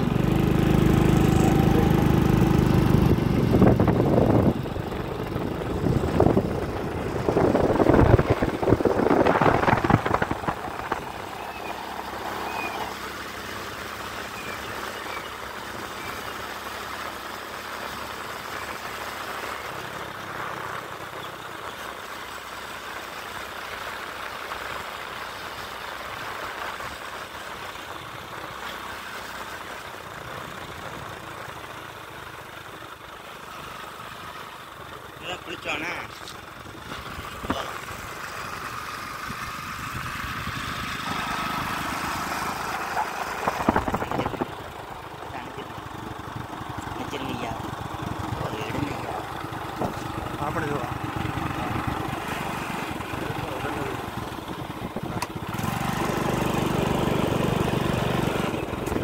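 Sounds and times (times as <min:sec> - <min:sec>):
motorcycle running: 0:00.0 - 0:59.0
wind buffeting microphone: 0:03.0 - 0:11.6, 0:43.4 - 0:44.6.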